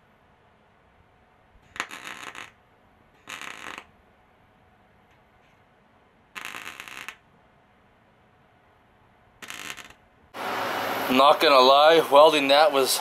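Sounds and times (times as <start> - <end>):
welder crackling bursts: 1.7 - 2.6, 3.2 - 3.9, 6.3 - 7.2, 9.4 - 13.0.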